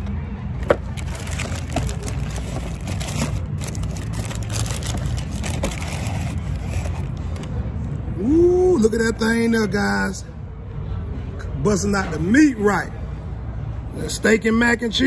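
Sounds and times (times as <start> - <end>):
paper and cardboard crinkling: 1.0 - 7.2.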